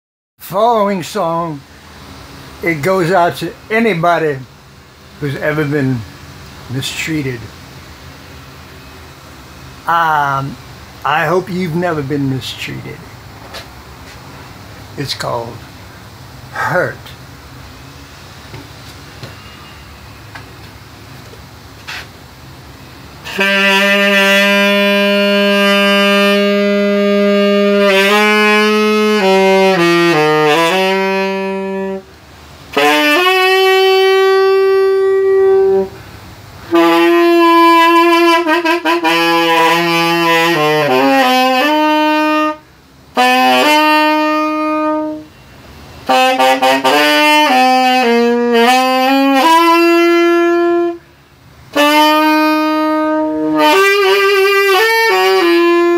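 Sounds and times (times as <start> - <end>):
solo tenor saxophone ballad: 0.5 - 55.9.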